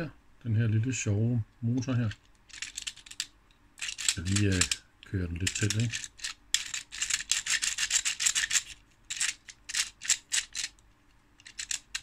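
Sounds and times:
plastic model engine clicking and rattling: 0:02.5 - 0:04.8, 0:05.4 - 0:10.7, 0:11.4 - 0:12.0.

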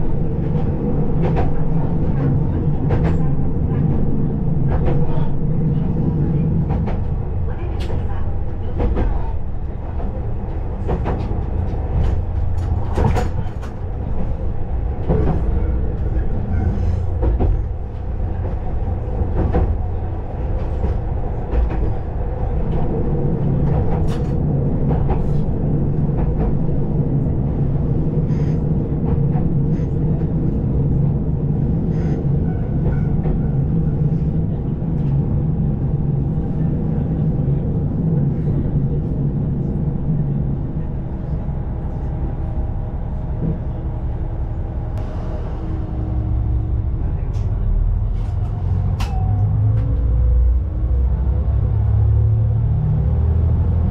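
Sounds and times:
railcar low rumble: 0:00.0 - 0:53.9
diesel engine drone: 0:38.7 - 0:53.9.

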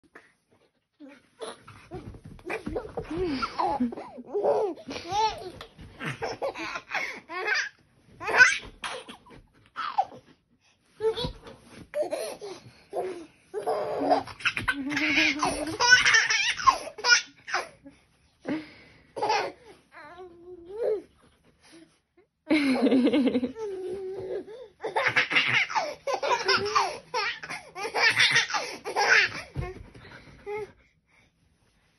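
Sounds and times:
baby laughing and squealing: 0:01.4 - 0:10.2, 0:13.0 - 0:17.8, 0:23.6 - 0:29.7.

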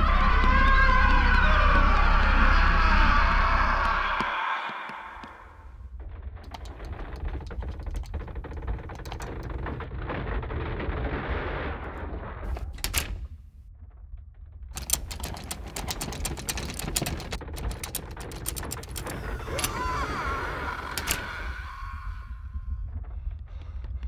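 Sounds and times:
deep rumble: 0:00.0 - 0:04.4, 0:05.1 - 0:24.0
door rattling and knocking: 0:06.0 - 0:11.1, 0:12.4 - 0:13.6, 0:14.5 - 0:22.2.

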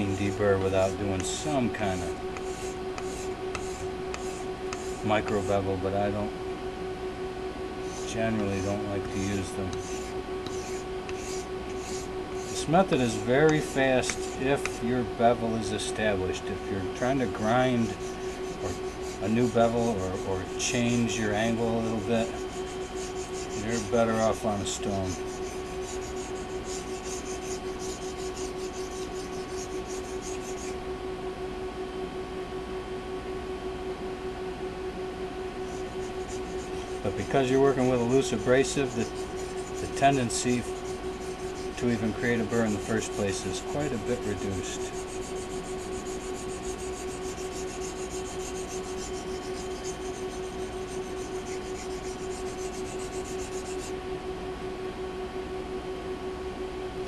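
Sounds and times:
steady hum: 0:00.0 - 0:57.0
knife blade scraping on board: 0:02.3 - 0:05.5, 0:07.9 - 0:14.8, 0:17.0 - 0:30.8, 0:35.6 - 0:53.9.

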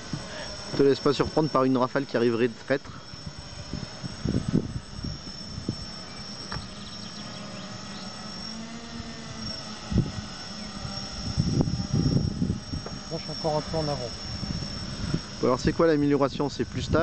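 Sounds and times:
drone propeller hum: 0:00.0 - 0:17.0
wind on microphone: 0:03.2 - 0:07.0, 0:08.9 - 0:17.0.

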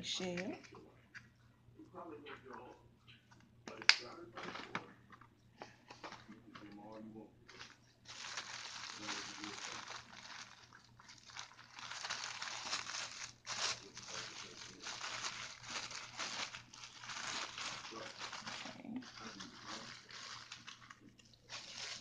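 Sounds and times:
cellophane bag crinkling: 0:07.5 - 0:22.0.

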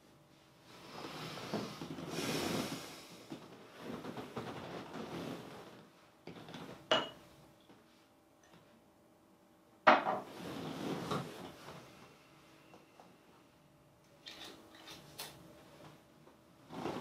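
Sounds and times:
glass clinking on table: 0:06.9 - 0:07.2.

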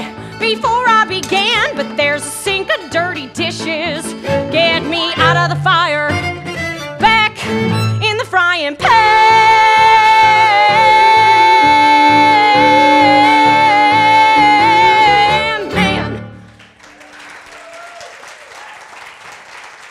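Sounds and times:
woman singing: 0:00.0 - 0:06.2, 0:07.0 - 0:16.3
audience applause: 0:16.4 - 0:19.9.

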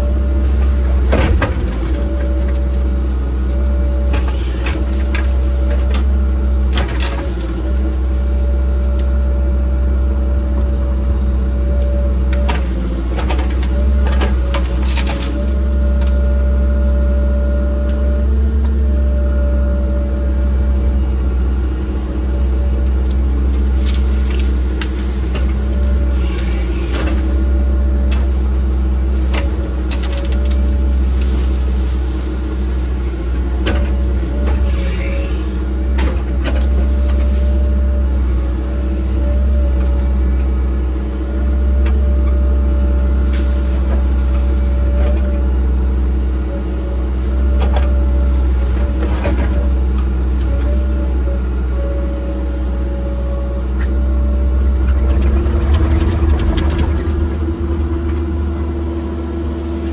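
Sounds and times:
heavy machinery engine running: 0:00.0 - 0:59.9
sharp knocks and cracks: 0:00.9 - 0:02.8.

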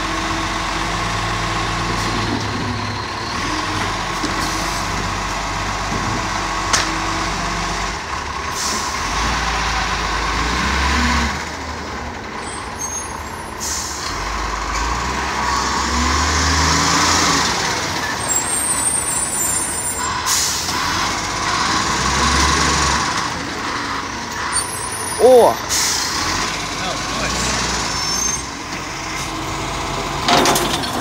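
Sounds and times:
garbage truck diesel engine revving: 0:00.0 - 0:31.0
air brakes hissing: 0:08.5 - 0:09.0, 0:12.8 - 0:14.1, 0:18.3 - 0:20.8, 0:24.5 - 0:26.2.

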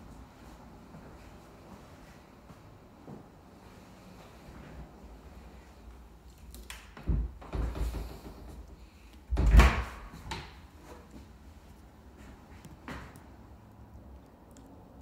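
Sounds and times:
closet doors knocking and rattling: 0:07.0 - 0:08.6, 0:09.3 - 0:10.6.

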